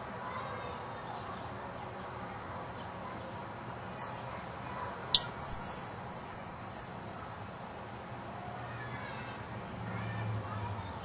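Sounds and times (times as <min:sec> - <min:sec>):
woodpecker calls: 0:03.9 - 0:07.5.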